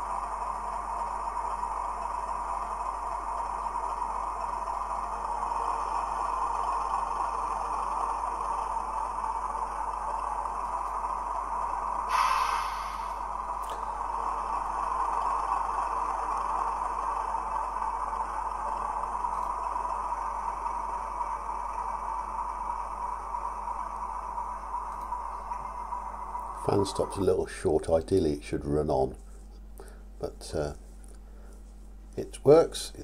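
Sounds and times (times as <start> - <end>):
model locomotive diesel engine sound: 0.0 - 33.0
short hiss: 12.1 - 13.4.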